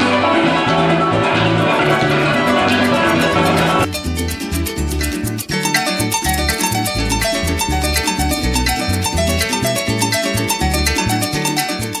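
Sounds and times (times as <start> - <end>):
instrumental music with plucked strings: 0.0 - 12.0.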